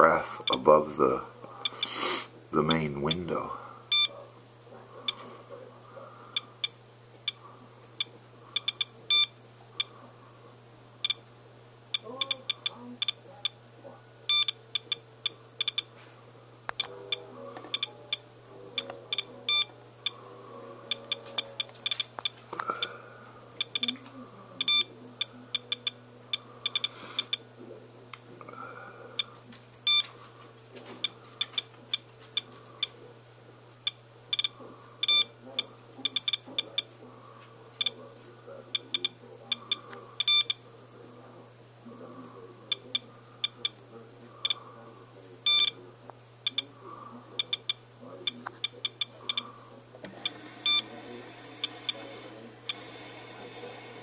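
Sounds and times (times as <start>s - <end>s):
geiger counter beeping: 3.9s - 4.2s, 8.0s - 9.9s, 14.3s - 15.9s, 18.8s - 19.7s, 23.6s - 24.0s, 24.6s - 27.4s, 33.9s - 36.9s, 38.8s - 40.6s, 45.4s - 45.8s, 47.4s - 47.8s, 50.2s - 50.8s.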